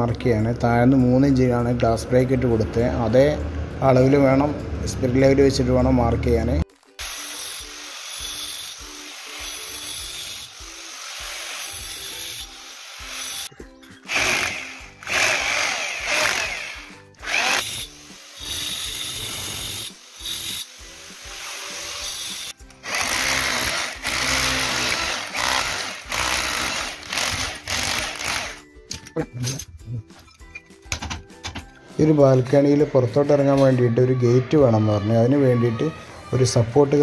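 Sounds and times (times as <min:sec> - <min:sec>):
electric drill boring into stone: 0:07.0 - 0:13.5, 0:14.1 - 0:28.6
angle grinder cutting: 0:07.0 - 0:28.6.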